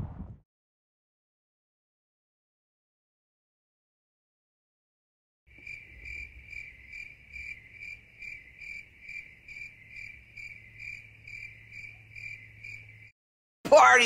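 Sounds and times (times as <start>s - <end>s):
cricket chirping: 5.5s - 13.2s.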